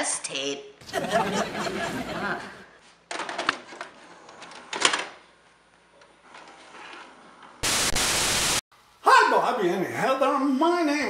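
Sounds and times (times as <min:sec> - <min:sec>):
tv static hiss: 0:07.6 - 0:11.0.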